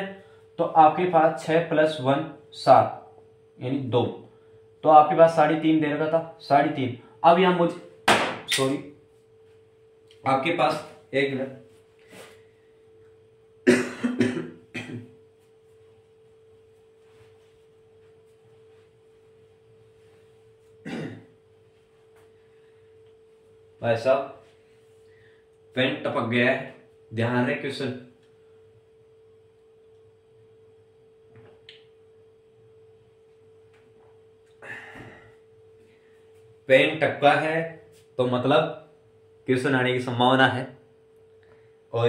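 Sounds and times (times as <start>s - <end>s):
faint hum: 0.0s - 42.0s
man coughing: 13.6s - 15.2s, 20.8s - 21.4s.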